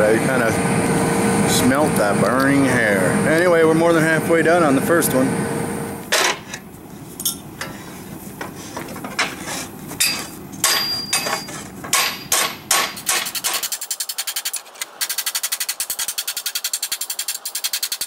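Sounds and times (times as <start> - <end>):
hammer striking steel plate: 10.0 - 13.6.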